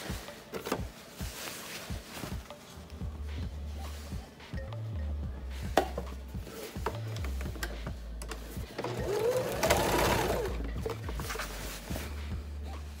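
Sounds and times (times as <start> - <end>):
sewing machine motor hum: 8.8 - 10.7.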